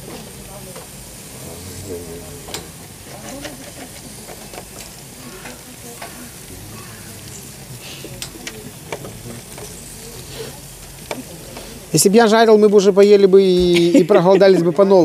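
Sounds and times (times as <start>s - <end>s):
fish sizzling on a grill: 0.0s - 15.0s
crackles and pops: 2.4s - 11.8s.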